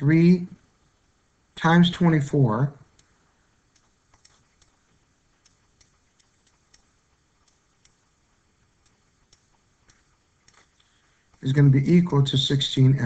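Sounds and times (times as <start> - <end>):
stylus tapping on touchscreen: 3.7 - 4.8.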